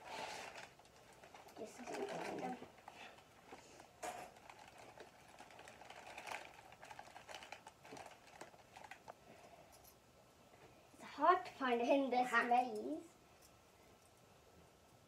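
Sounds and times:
small objects clicking and rustling: 0.3s - 10.0s.

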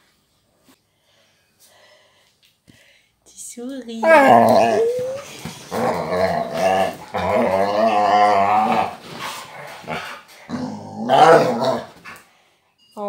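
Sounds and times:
dog growling in play: 4.0s - 12.2s.

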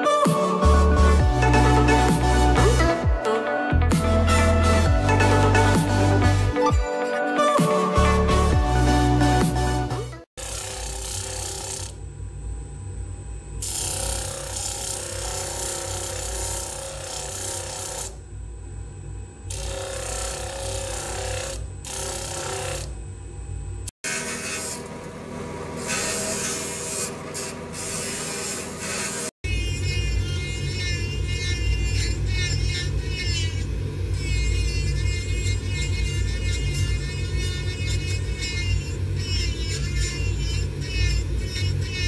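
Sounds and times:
stone grinding on wheel: 13.6s - 18.2s, 19.5s - 22.9s
grinding wheel motor hum: 13.6s - 42.0s.

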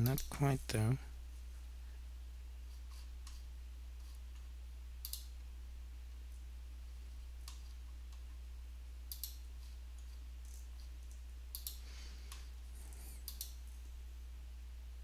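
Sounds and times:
steady low hum: 0.0s - 15.0s
computer mouse buttons clicking: 5.0s - 5.3s, 9.1s - 9.4s, 11.5s - 12.4s, 13.2s - 13.6s.

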